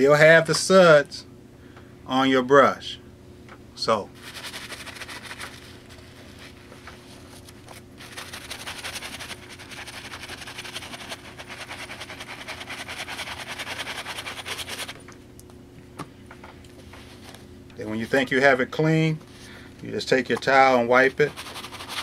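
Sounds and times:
brush scrubbing sneaker: 8.0s - 15.0s, 21.1s - 22.0s.

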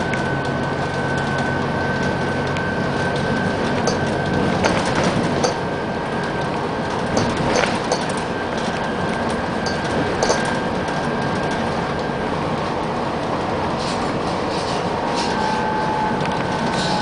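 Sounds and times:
bus engine and tyres rumbling: 0.0s - 17.0s
bodywork rattles and clicks: 2.5s - 5.6s, 6.2s - 12.7s.

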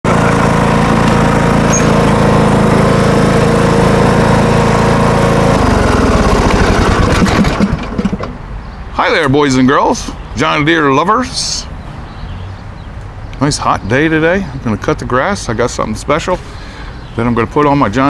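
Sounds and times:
lawn tractor engine running: 0.0s - 8.4s.

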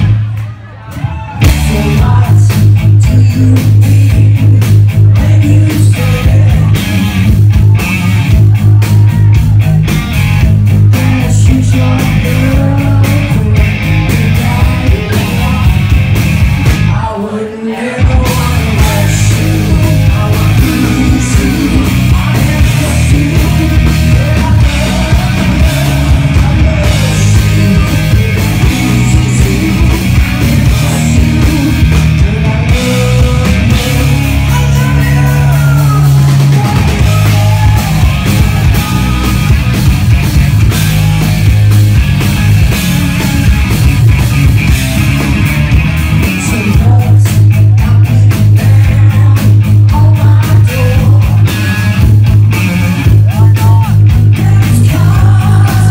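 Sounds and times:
drums: 0.0s - 55.9s
electric guitar: 0.0s - 55.9s
woman singing: 54.4s - 55.9s.

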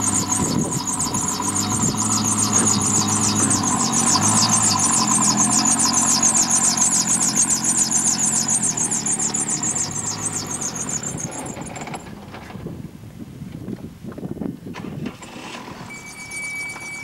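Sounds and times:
small engine running: 0.0s - 12.4s.

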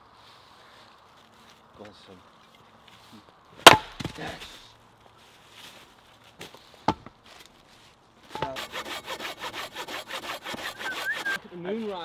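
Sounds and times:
sharp wooden knock: 3.7s - 4.1s
hand saw cutting log: 8.3s - 11.4s.

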